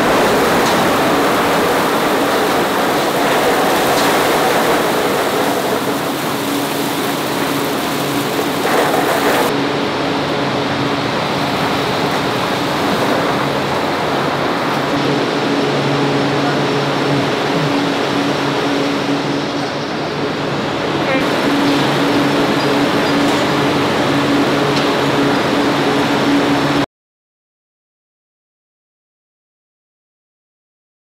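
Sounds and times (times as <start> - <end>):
machine hum: 0.0 - 26.9
olives pouring through steel grate: 1.0 - 9.5.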